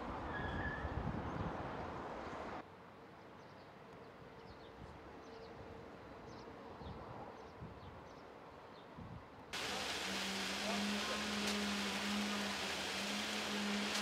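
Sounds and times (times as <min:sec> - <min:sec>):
road traffic rushing: 0:09.6 - 0:14.0.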